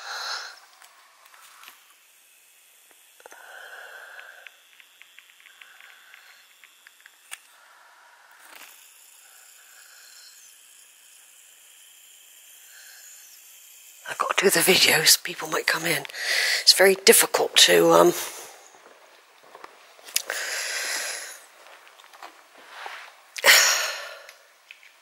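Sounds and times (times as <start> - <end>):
small clicks: 4.1 - 7.6, 24.2 - 25.0
soft breathing: 5.4 - 6.6, 7.5 - 10.4, 16.1 - 16.7, 20.2 - 21.8.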